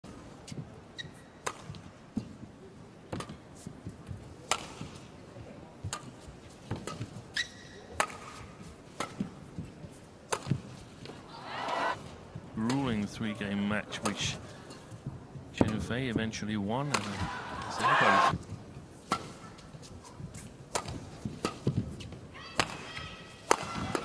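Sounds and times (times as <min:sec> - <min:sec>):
shoe squeaks on court: 0:01.0 - 0:01.3, 0:07.3 - 0:07.8
racket striking shuttlecock: 0:20.7 - 0:21.7.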